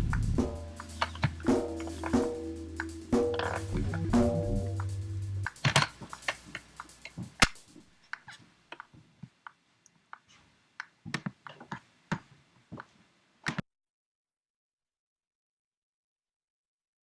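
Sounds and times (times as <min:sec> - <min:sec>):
faint hiss: 0:00.0 - 0:10.8
sharp clicks and ticks: 0:04.7 - 0:07.7.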